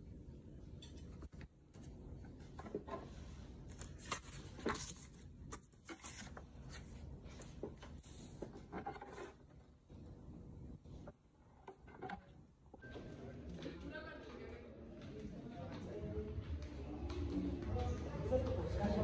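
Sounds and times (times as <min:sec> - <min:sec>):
low room hum: 0:00.0 - 0:19.0
paper cards rustling: 0:01.2 - 0:09.4.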